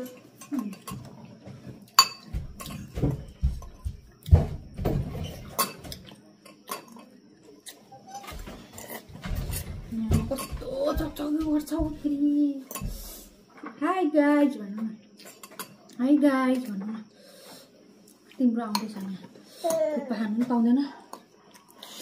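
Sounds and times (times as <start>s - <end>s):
cutlery clinking on ceramic bowls: 1.9s - 3.1s, 5.3s - 7.1s, 15.2s - 15.8s.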